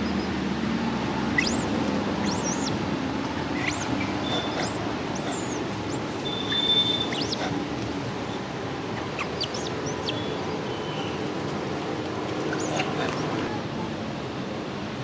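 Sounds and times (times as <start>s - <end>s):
birds chirping: 0.0s - 0.4s, 1.0s - 13.6s
steady outdoor hiss: 0.0s - 15.0s
bird whistle: 1.4s - 2.8s, 3.6s - 7.5s, 9.2s - 11.2s.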